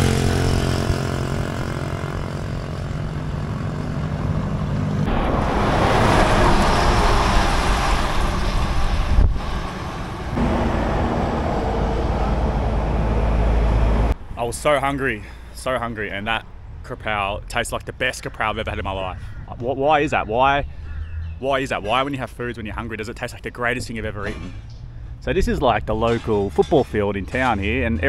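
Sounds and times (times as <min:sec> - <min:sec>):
low engine hum: 0:00.0 - 0:14.4
road vehicle rushing noise: 0:00.0 - 0:14.8.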